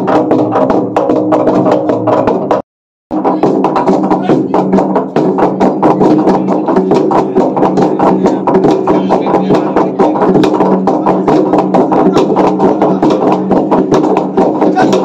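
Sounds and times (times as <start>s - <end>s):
log drum beaten fast: 0.0s - 15.0s.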